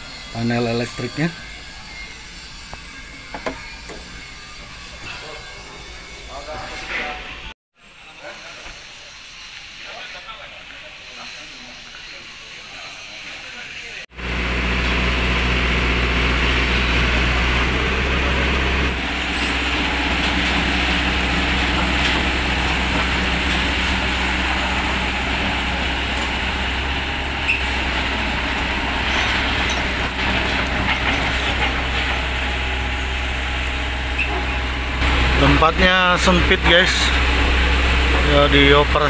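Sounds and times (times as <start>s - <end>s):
excavator diesel engine droning: 14.1s - 39.0s.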